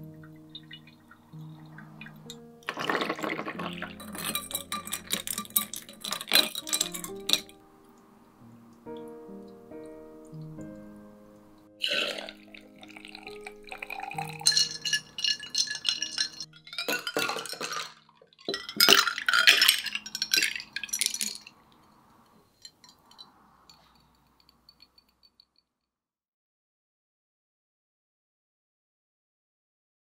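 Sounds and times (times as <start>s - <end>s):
soft music: 0.0s - 24.3s
coffee pouring over ice: 1.0s - 7.6s, 11.8s - 21.9s
ice clinking against glass: 1.8s - 7.6s, 11.8s - 21.8s
sharp glass clink: 14.0s - 21.5s.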